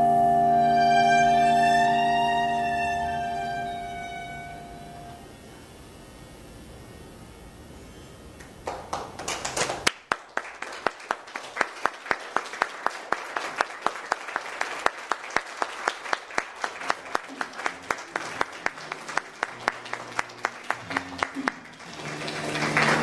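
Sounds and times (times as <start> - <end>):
audience clapping: 8.4 - 23.0.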